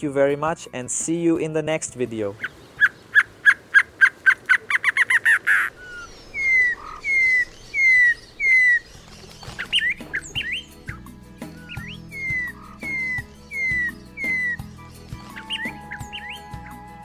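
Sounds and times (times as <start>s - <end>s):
bird song accelerating notes: 0.2s - 17.0s
short upward bird chirps: 4.8s - 16.9s
bird slurred falling whistles: 4.8s - 17.0s.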